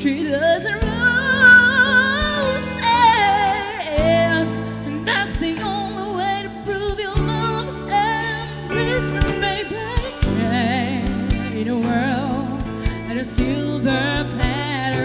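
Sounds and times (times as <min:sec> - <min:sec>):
bass and keyboard notes: 0:00.0 - 0:15.0
woman singing with vibrato: 0:00.0 - 0:15.0
drums hitting: 0:06.9 - 0:14.7.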